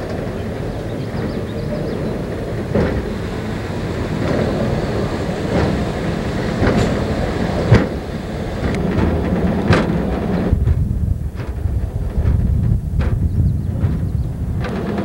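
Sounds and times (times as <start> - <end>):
wheels clicking over rail joints: 0.0 - 15.0
wheels rumbling on rails: 0.0 - 15.0.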